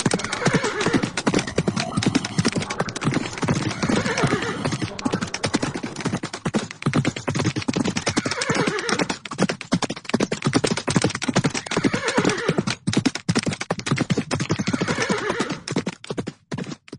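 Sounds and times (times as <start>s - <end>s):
horse whinnying: 0.0s - 6.0s, 8.0s - 9.1s, 11.5s - 12.7s, 14.5s - 15.7s
galloping hoofbeats: 0.0s - 16.9s.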